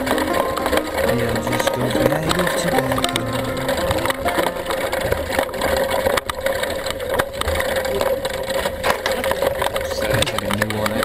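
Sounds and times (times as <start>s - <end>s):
wheels rattling over a trail: 4.9s - 11.0s.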